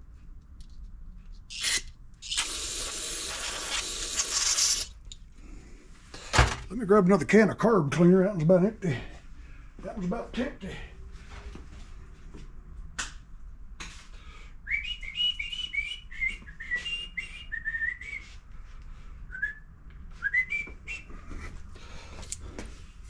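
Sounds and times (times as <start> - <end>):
person whistling a tune: 14.7 - 18.4, 19.3 - 21.2.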